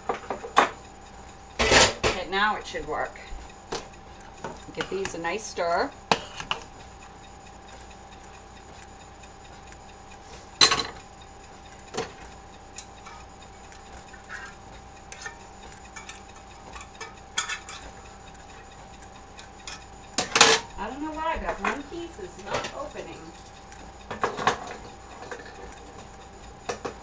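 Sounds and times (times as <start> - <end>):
faint steady hum: 0.0 - 27.0
utensils clinking on steel pots: 14.3 - 18.0.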